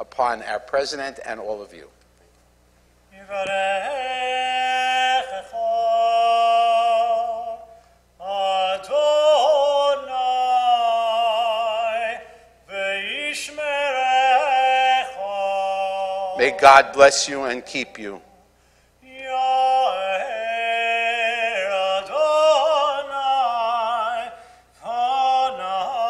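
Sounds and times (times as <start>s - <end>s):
person chanting a sung blessing: 3.2s - 18.4s.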